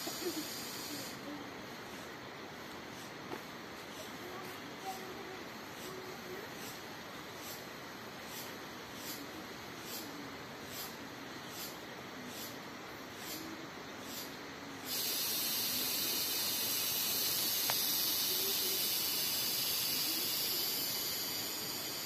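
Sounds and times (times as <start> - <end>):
high-pitched insect buzz: 0.0 - 1.2, 13.2 - 22.0
insect chirp pulsing: 0.0 - 2.4, 3.9 - 22.0.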